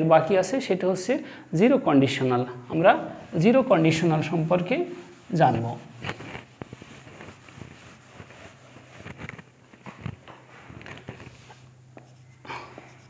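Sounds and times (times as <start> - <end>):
steady low hum: 0.0 - 13.0
whiteboard being wiped: 2.7 - 12.3.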